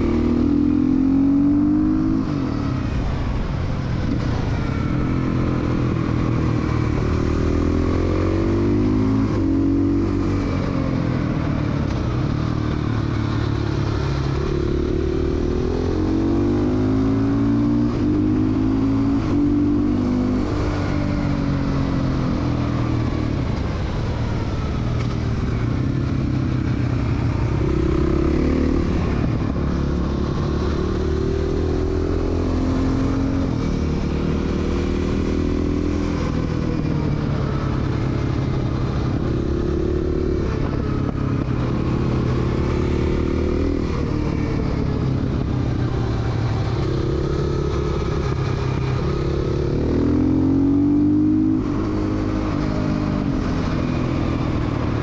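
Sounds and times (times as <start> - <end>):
motorcycle engine revving: 24.7 - 55.0.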